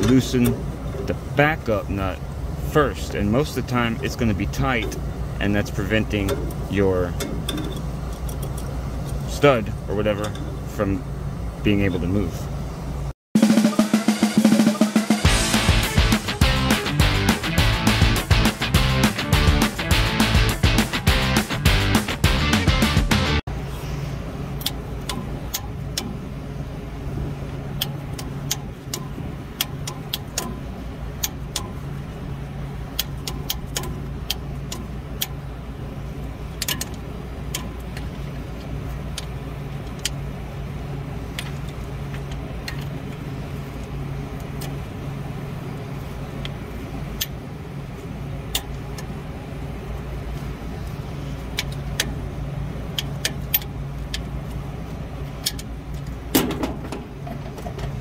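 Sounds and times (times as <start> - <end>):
low machine hum: 0.0 - 13.2, 15.3 - 58.0
tubing cutter metallic clicks: 27.8 - 30.6, 33.0 - 35.4, 55.4 - 56.2.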